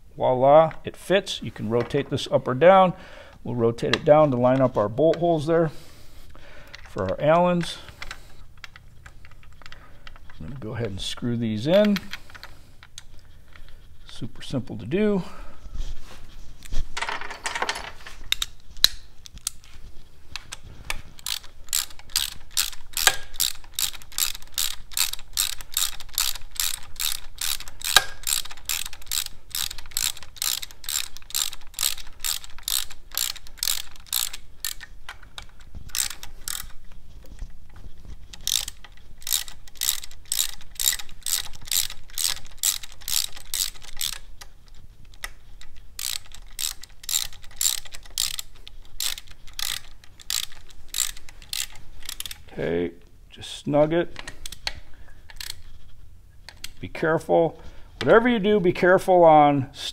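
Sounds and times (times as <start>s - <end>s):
hand ratchet clicking: 6.3s - 10.9s, 11.6s - 13.8s, 18.3s - 19.7s, 20.4s - 52.5s, 54.2s - 55.7s.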